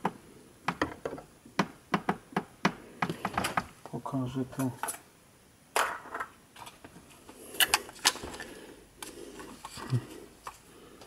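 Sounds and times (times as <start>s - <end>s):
plastic clicks: 7.6s - 10.6s.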